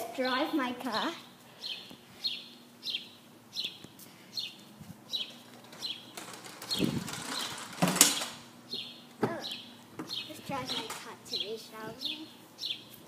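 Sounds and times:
bird chirping: 1.6 - 13.0
rustling and handling noise: 3.8 - 8.6, 9.2 - 11.2.

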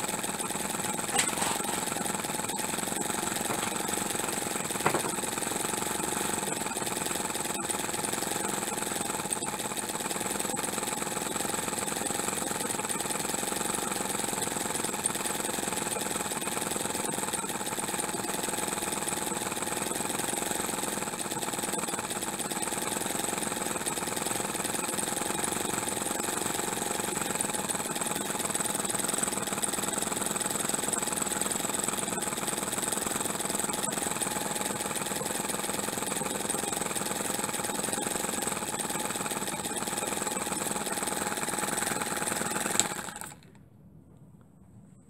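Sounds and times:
small engine running: 0.0 - 43.6.

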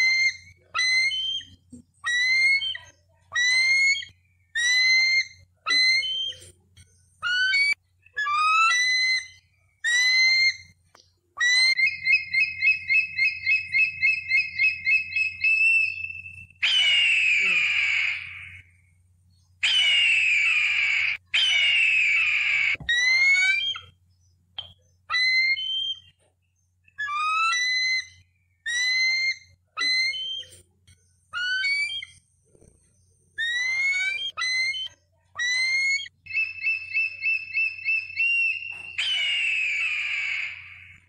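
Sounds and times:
eagle calling: 7.2 - 10.8, 11.4 - 18.7, 19.6 - 23.9, 33.4 - 41.0.

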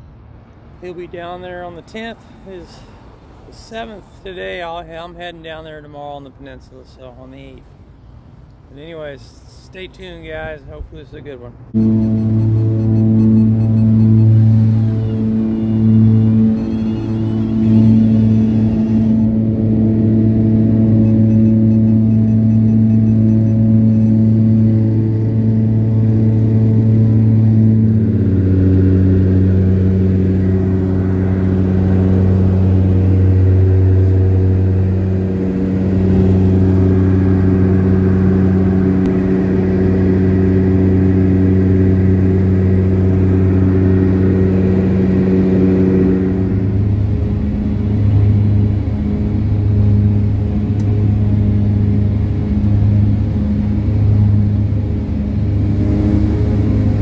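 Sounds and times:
throbbing small plane engine drone: 10.5 - 57.0
turboprop cabin drone: 11.6 - 57.0.

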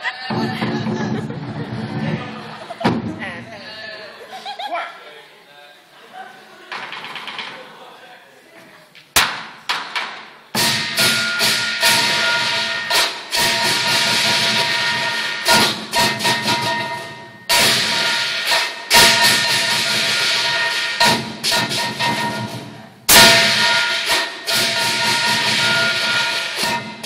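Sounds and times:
large drum beaten rapidly: 0.3 - 3.3, 10.6 - 27.0
crashing cymbals: 10.6 - 27.0
gong: 10.8 - 22.6, 23.2 - 27.0.

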